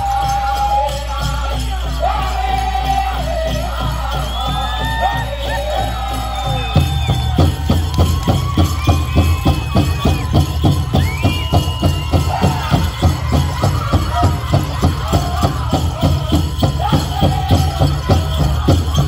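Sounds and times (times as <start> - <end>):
high voices singing: 0.0 - 7.4, 11.8 - 19.0
big drum fast beat: 0.0 - 19.0.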